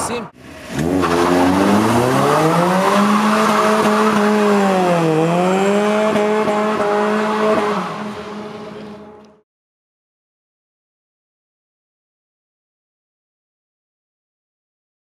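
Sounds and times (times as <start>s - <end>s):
car engine revving hard: 0.4s - 9.1s.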